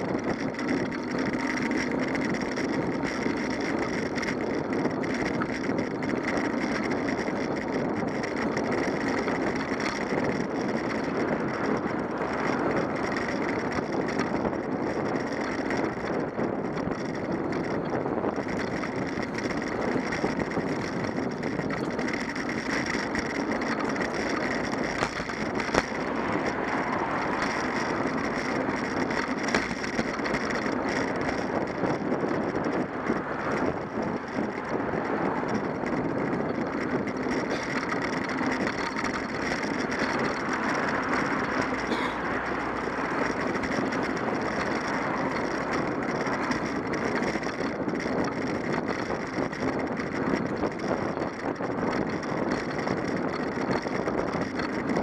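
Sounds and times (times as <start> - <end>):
bicycle rumble on pavement: 0.0 - 55.0
car traffic: 0.0 - 55.0
wind noise: 0.0 - 55.0.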